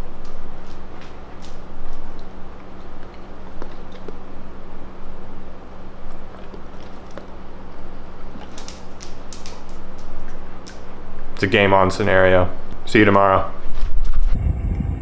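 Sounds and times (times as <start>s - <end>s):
steady low hum: 0.0s - 15.0s
dog claws clicking on hard floor: 0.2s - 4.3s, 6.1s - 7.4s, 8.3s - 11.0s.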